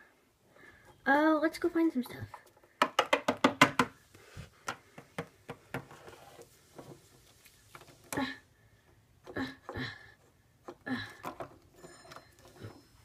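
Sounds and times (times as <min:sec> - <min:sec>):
plastic toys tapping on wooden table: 0:02.3 - 0:04.0.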